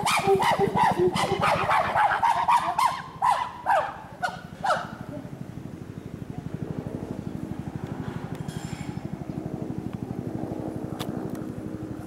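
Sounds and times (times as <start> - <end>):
chimpanzees hooting: 0.0 - 5.0.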